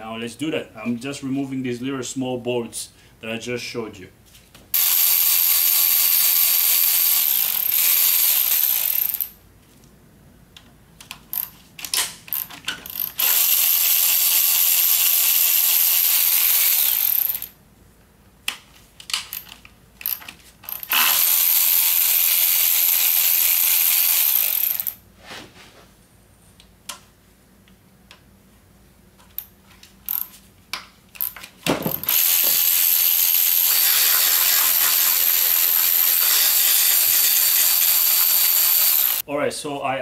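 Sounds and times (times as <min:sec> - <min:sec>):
ratchet wrench ratcheting: 0:04.8 - 0:09.4, 0:12.3 - 0:17.6, 0:19.2 - 0:25.0, 0:30.1 - 0:30.3, 0:31.2 - 0:39.2
tool and bolt clicks: 0:10.6 - 0:13.5, 0:18.4 - 0:21.0, 0:29.2 - 0:32.7.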